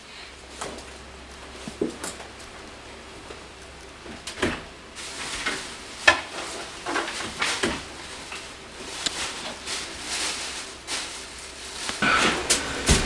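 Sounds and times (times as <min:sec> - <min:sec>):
clothes rustling and clattering: 0:04.0 - 0:13.0.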